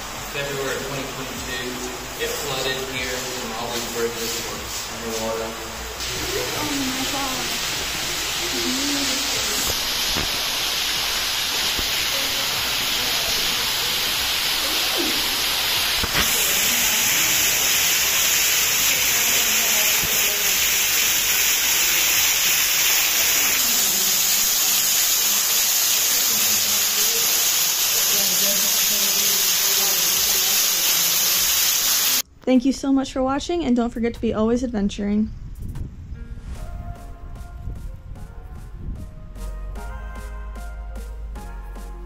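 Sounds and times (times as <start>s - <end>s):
creek water flowing: 0.0s - 32.2s.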